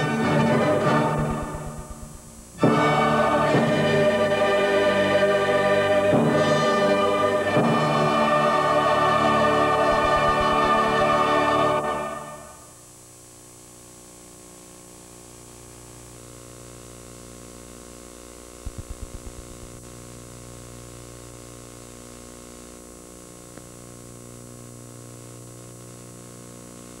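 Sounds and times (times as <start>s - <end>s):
electrical hum with tape hiss: 0.0s - 27.0s
low thumps: 1.1s - 2.7s, 9.8s - 11.2s, 18.7s - 19.8s.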